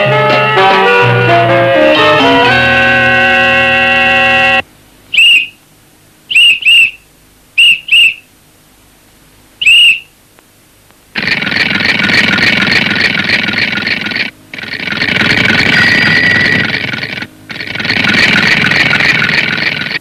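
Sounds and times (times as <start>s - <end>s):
music holding a chord: 0.0s - 4.6s
sharp whistle blasts: 5.1s - 5.6s, 6.3s - 7.0s, 7.6s - 8.3s, 9.6s - 10.1s.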